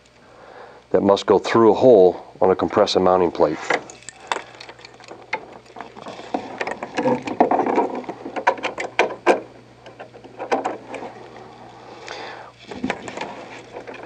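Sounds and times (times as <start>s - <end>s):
steady low hum: 0.0s - 14.0s
plastic and metal parts scraping: 3.7s - 11.6s, 12.6s - 14.0s.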